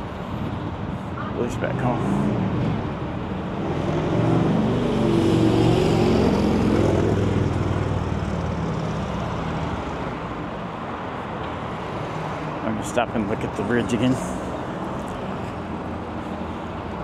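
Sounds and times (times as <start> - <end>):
vehicle passing by: 1.4 - 10.3.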